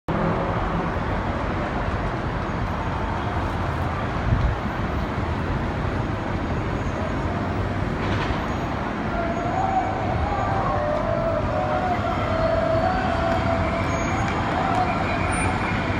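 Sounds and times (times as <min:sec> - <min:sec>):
city traffic noise: 0:00.1 - 0:15.9
distant siren wavering: 0:09.0 - 0:15.9.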